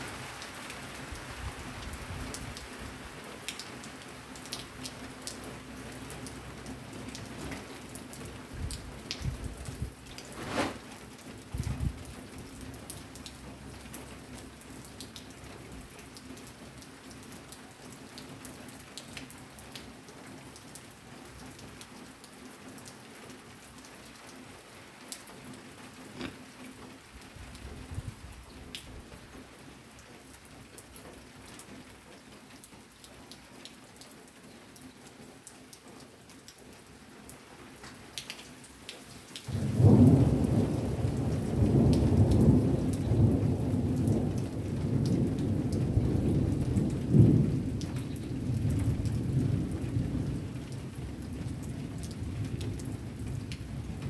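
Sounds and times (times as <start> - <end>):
raindrops ticking close by: 0.0 - 54.0
rain hissing: 7.2 - 12.2, 38.9 - 43.6.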